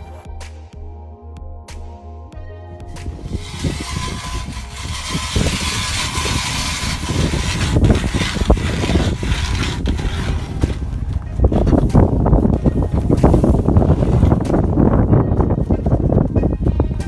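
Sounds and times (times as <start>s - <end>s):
wind rumble on microphone: 2.9s - 17.0s
ice auger scraping ice: 3.1s - 11.8s.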